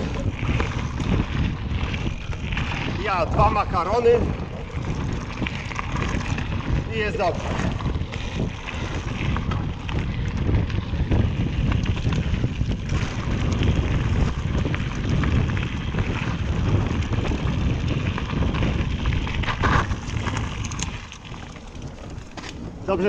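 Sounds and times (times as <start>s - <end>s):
bike clicks and rattles: 0.0s - 23.0s
tyres rumbling on dirt: 0.0s - 23.0s
wind buffeting microphone: 0.0s - 23.0s.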